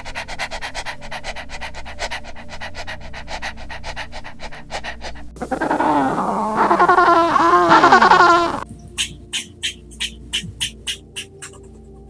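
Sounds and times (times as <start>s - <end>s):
dog panting: 0.0s - 5.4s
penguin braying call: 0.0s - 11.7s.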